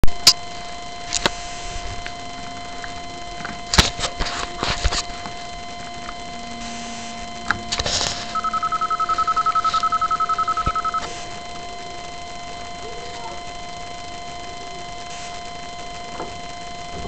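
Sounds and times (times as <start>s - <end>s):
rapid pulsing beep: 5.0s - 17.0s.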